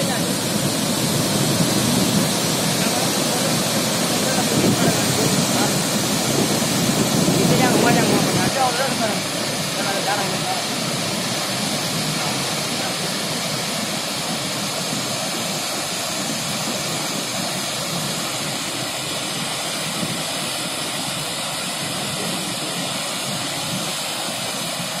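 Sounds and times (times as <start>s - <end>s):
rushing water torrent: 0.0s - 25.0s.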